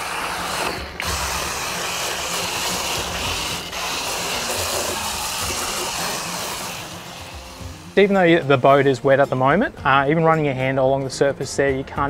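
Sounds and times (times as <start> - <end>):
hose spray hissing on metal hull: 0.0 - 8.8.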